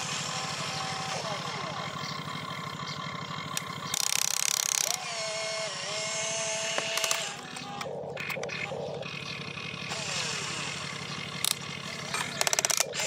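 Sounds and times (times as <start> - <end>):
electric motors whirring: 0.0 - 13.0
loud rasping burst: 3.6 - 13.0.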